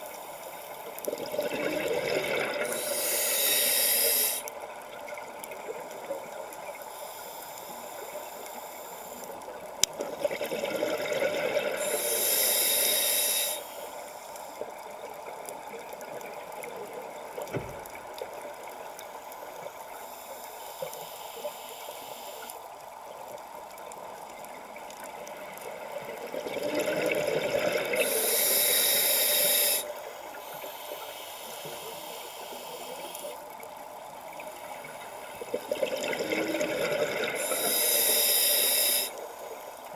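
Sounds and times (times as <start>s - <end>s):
steady underwater hiss: 0.0s - 39.9s
regulator inhale hiss: 2.5s - 4.7s, 6.8s - 9.4s, 11.6s - 14.7s, 19.3s - 22.6s, 27.5s - 33.4s, 36.3s - 39.9s.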